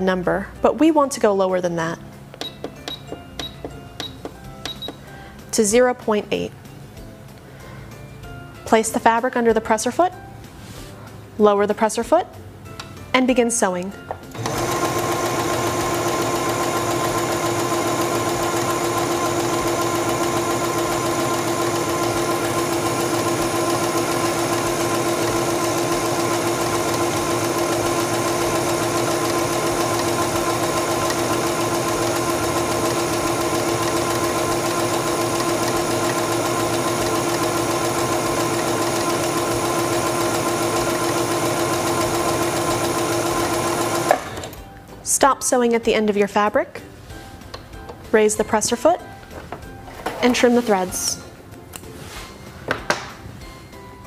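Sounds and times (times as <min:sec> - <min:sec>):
sewing machine whining: 0:14.3 - 0:44.6.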